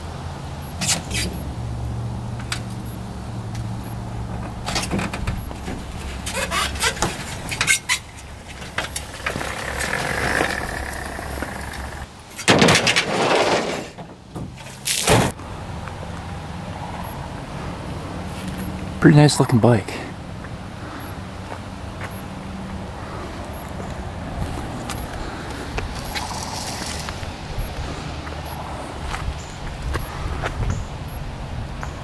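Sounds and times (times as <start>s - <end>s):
dirt bike rolling down metal ramp: 3.8s - 15.3s
metal ramp clattering: 4.4s - 15.3s
tailgate slammed shut: 11.5s - 15.4s.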